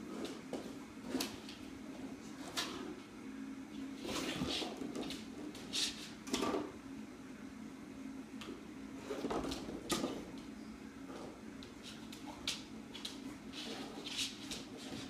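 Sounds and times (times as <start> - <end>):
steady low hum: 0.0 - 15.0
puppy scuffing on floor: 11.6 - 15.0.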